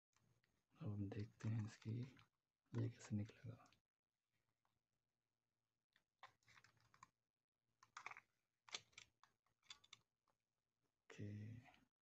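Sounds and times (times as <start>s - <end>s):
camera case clicking and scraping: 6.2s - 7.1s, 7.8s - 10.0s.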